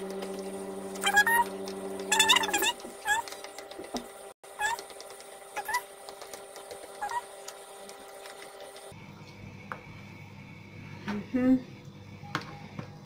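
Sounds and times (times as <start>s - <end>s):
high-pitched animal calls: 1.0s - 1.5s, 2.1s - 3.3s, 4.6s - 4.8s, 5.6s - 5.9s, 7.0s - 7.3s.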